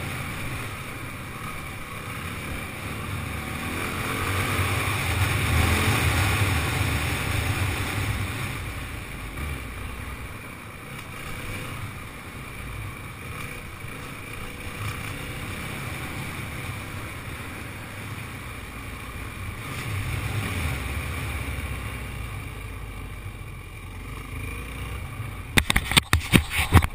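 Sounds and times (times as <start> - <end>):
dirt bike engine running: 0.0 - 26.9
wind noise on microphone: 25.6 - 26.9.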